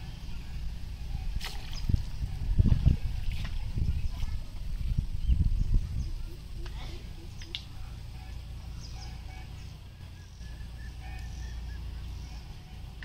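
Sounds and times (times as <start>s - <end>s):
steady low rumble: 0.0s - 13.0s
waterfowl calls: 6.2s - 13.0s.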